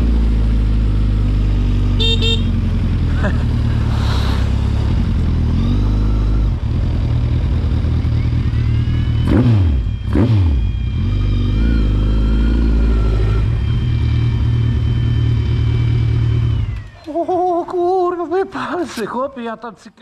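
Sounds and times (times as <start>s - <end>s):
quad engine running at low speed: 0.0s - 18.0s
engine throttle blips: 1.6s - 17.3s.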